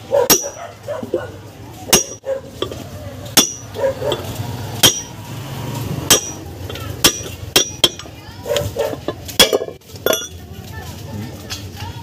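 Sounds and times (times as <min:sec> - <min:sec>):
hammer clanking on steel tube: 0:01.9 - 0:02.2, 0:03.4 - 0:03.8, 0:04.8 - 0:05.1, 0:06.1 - 0:08.1.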